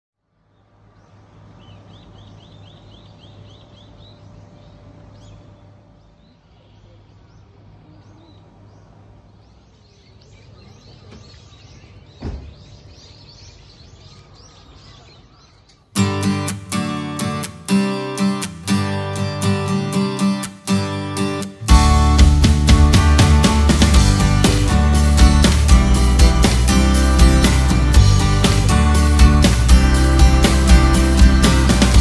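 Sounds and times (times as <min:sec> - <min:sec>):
small birds chirping: 0:00.4 - 0:18.5
thump: 0:12.2 - 0:12.7.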